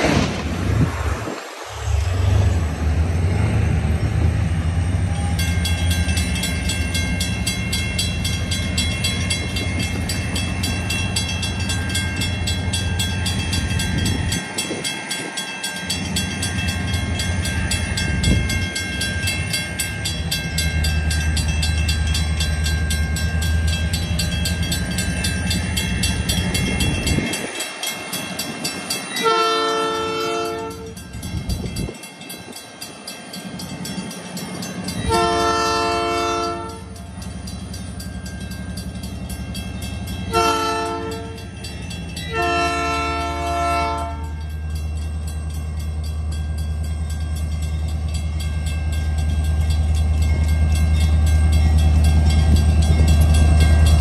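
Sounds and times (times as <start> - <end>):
railroad crossing bell ringing: 3.0 - 54.0
train horn: 29.2 - 31.0, 35.1 - 37.0, 40.3 - 41.4, 42.3 - 44.4.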